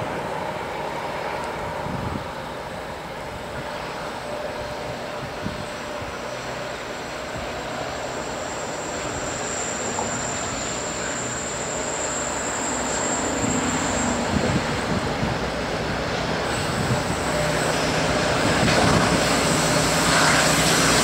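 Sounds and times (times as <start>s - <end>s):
diesel locomotives under heavy load: 0.0s - 21.0s.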